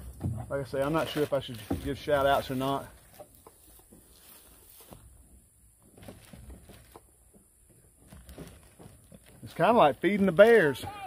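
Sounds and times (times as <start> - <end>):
plastic bag rustling: 5.9 - 7.0, 8.0 - 10.8.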